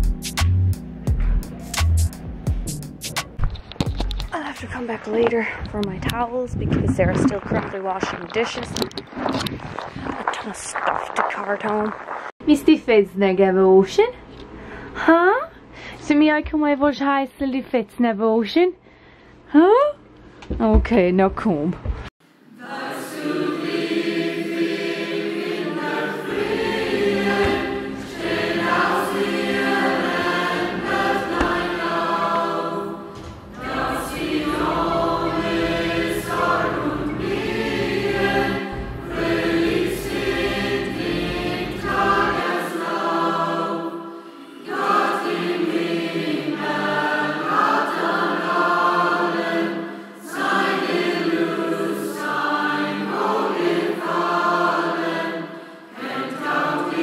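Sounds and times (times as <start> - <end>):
choir singing: 22.4 - 57.0.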